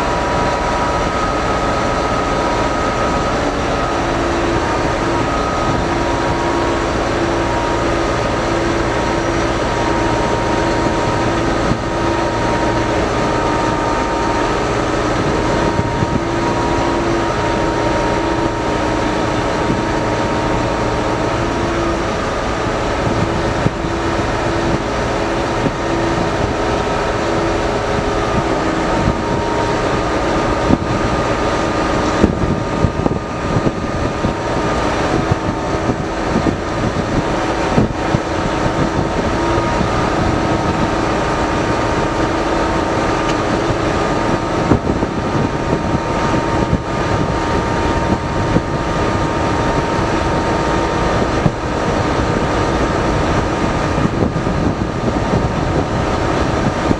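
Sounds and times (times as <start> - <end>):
diesel engine drone: 0.0 - 56.9.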